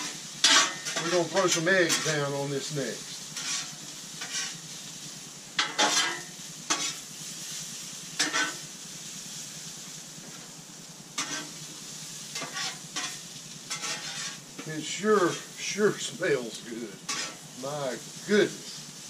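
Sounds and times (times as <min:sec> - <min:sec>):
metal spatula scraping: 0:00.0 - 0:04.9, 0:05.6 - 0:08.8, 0:11.2 - 0:15.8, 0:17.0 - 0:17.6
vegetables sizzling on a griddle: 0:00.0 - 0:19.0.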